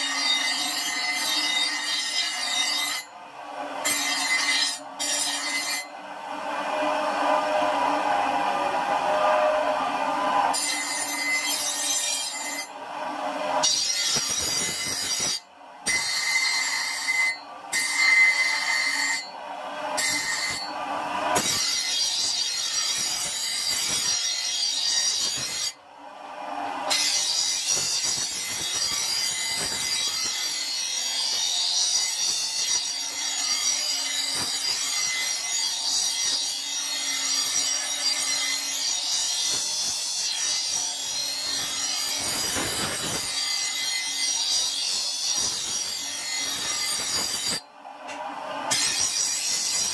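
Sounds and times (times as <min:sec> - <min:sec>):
bench grinder grinding blade: 0:00.0 - 0:03.1, 0:03.8 - 0:05.9, 0:06.7 - 0:25.8, 0:26.6 - 0:49.9.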